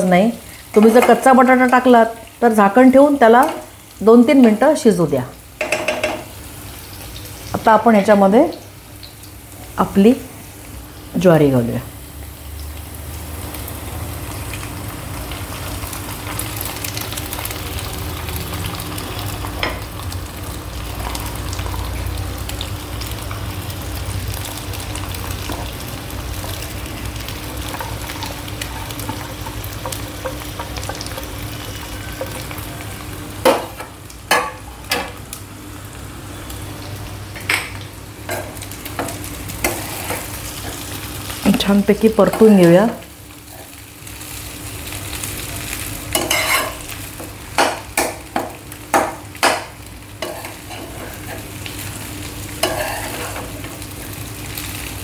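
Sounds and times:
grains sizzling in hot ghee: 0.0 - 55.0
steel spatula knocking against pan: 5.6 - 6.3.

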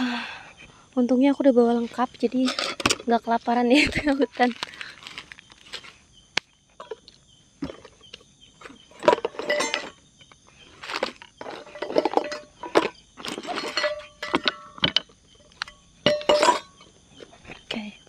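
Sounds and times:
cookware clinking and knocking: 9.0 - 9.9, 11.7 - 15.0, 15.6 - 16.9
metallic ring: 9.1 - 10.0, 11.8 - 15.0, 15.6 - 16.9.

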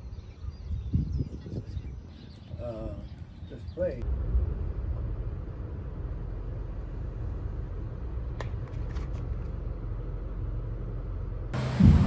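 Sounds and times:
low rumble: 4.0 - 8.3, 10.2 - 12.0.

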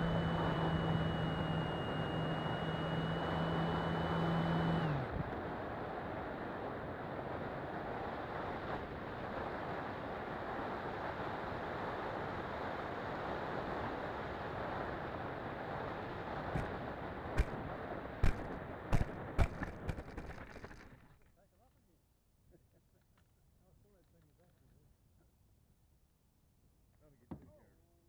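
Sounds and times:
sharp knocks: 18.2 - 20.9.

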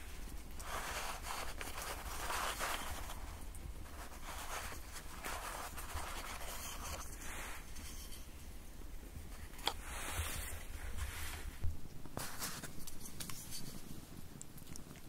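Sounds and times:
canvas rustling: 9.2 - 14.1.

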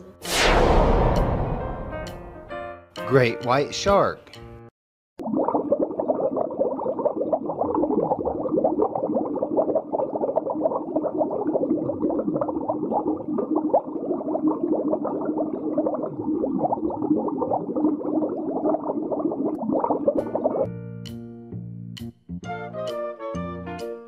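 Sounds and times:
low falling whoosh: 0.2 - 2.6
underwater bubbling: 5.2 - 20.7.

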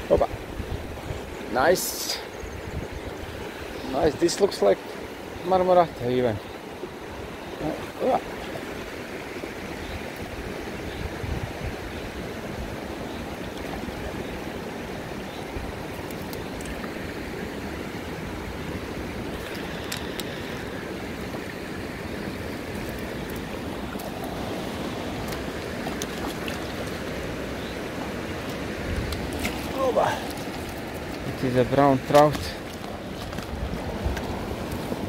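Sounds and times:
river rushing over stones: 0.0 - 2.4, 3.0 - 35.0
faint clicks: 19.3 - 20.5.

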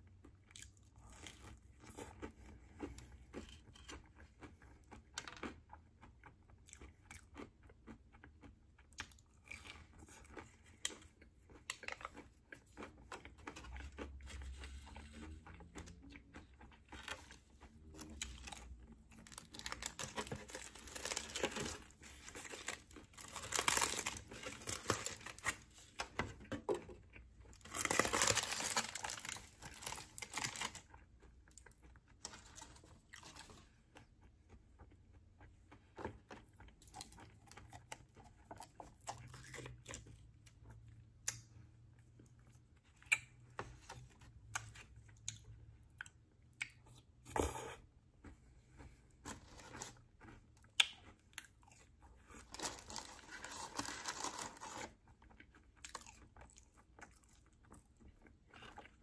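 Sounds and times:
chewing and crunching food: 0.0 - 59.0
foam box and wrapping crinkling: 18.4 - 26.9, 27.6 - 30.9, 52.4 - 55.0
sauce packet tearing: 27.7 - 30.8, 52.5 - 54.9.

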